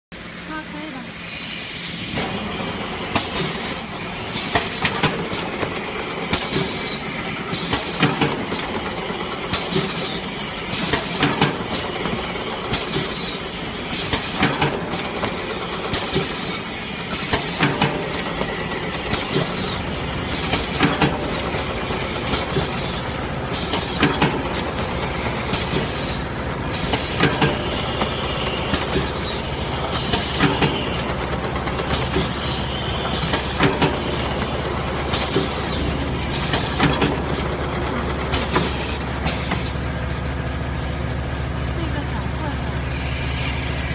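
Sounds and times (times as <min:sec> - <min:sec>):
pneumatic air hisses: 0:01.1 - 0:05.5, 0:06.3 - 0:08.1, 0:09.5 - 0:24.7, 0:25.5 - 0:31.1, 0:31.9 - 0:37.5
mechanical clatter: 0:01.3 - 0:43.9
low motor hum: 0:01.9 - 0:43.9
machine clacks: 0:02.1 - 0:40.6.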